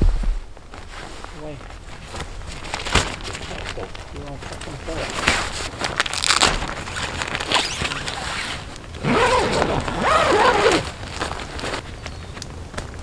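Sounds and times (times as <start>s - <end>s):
nylon fabric rustling: 0.6s - 12.0s
tent zipper being pulled: 4.9s - 11.8s.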